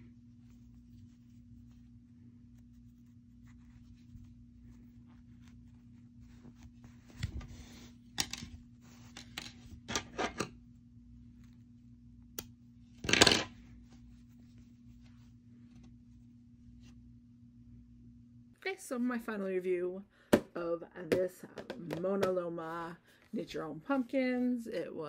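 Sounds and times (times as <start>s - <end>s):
soft rustling of craft materials: 0.0s - 17.2s.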